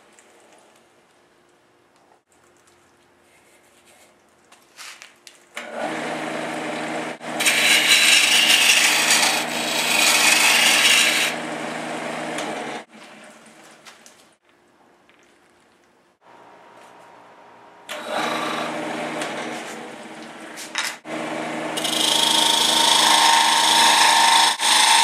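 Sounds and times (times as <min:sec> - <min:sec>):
lathe humming: 0:05.6 - 0:12.9, 0:17.9 - 0:20.4, 0:21.1 - 0:25.0.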